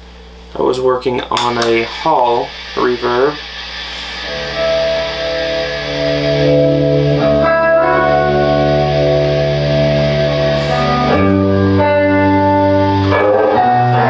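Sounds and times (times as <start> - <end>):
electric guitar chords with reverb: 1.4 - 14.0.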